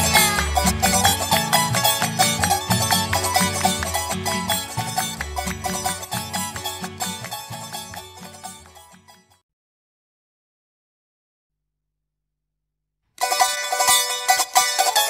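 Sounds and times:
folk music with plucked strings: 0.0s - 9.4s, 13.2s - 15.0s.

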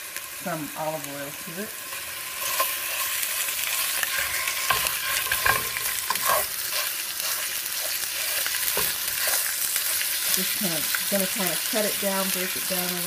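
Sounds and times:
meat sizzling in a skillet: 0.0s - 13.0s
plastic spatula scraping a pan: 2.4s - 10.4s.

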